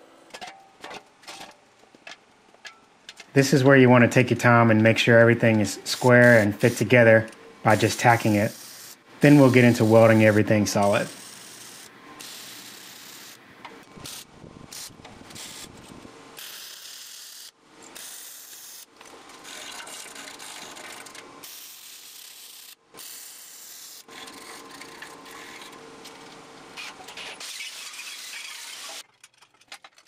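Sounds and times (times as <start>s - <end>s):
welding hiss: 7.7s - 13.4s, 14.0s - 15.7s, 21.4s - 24.1s.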